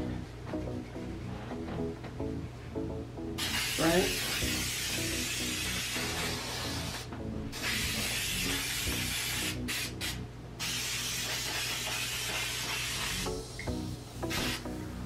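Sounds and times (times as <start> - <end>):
aerosol can hissing: 3.4 - 14.7.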